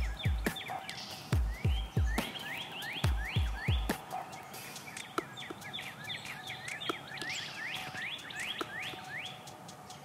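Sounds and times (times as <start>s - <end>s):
bird whistling rising notes: 0.0s - 10.0s
faint ticks: 4.0s - 10.0s.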